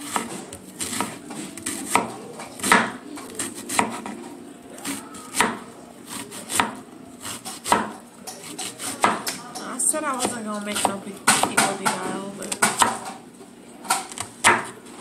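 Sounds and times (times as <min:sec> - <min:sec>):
knife knocking on cutting board: 0:01.0 - 0:03.0, 0:05.4 - 0:05.7, 0:09.0 - 0:09.4.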